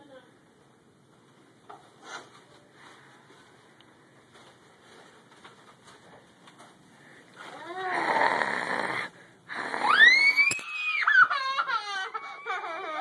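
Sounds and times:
child screaming: 0:09.8 - 0:13.0
child sobbing: 0:10.9 - 0:13.0.

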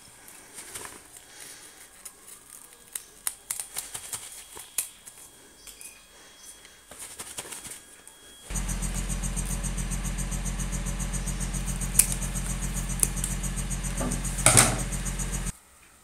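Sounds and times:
scissor snips: 0:02.0 - 0:05.8, 0:11.6 - 0:13.4
low buzzing hum: 0:08.5 - 0:15.5.

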